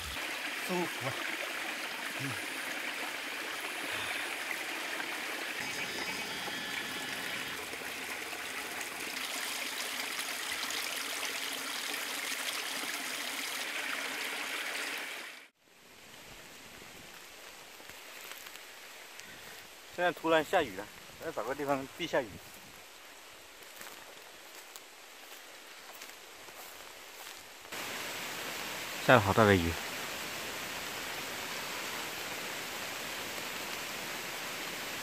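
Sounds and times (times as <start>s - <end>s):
stream babbling over rocks: 0.0s - 15.5s.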